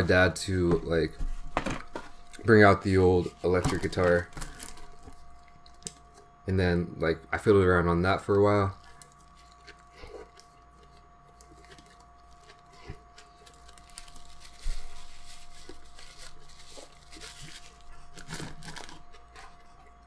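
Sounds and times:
faint steady hum: 0:00.0 - 0:20.0
chewing and crunching: 0:03.9 - 0:06.3, 0:08.3 - 0:20.0
paper wrapper crinkling: 0:11.4 - 0:19.6.

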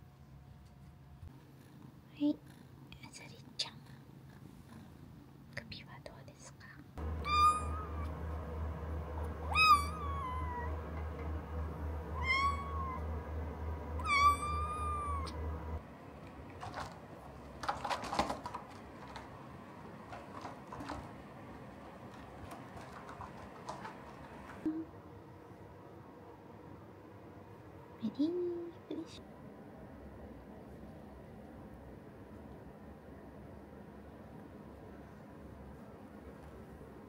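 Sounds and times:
steady low hum: 0:06.9 - 0:37.0
kitten meowing: 0:07.2 - 0:08.1, 0:09.4 - 0:10.8, 0:12.2 - 0:13.0, 0:14.0 - 0:15.4
light clicks and scratches: 0:22.1 - 0:24.7.

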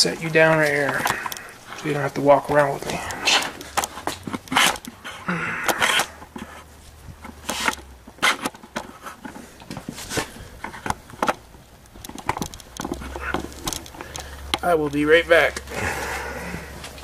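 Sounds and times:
camera handling knocks and clicks: 0:10.6 - 0:14.6.

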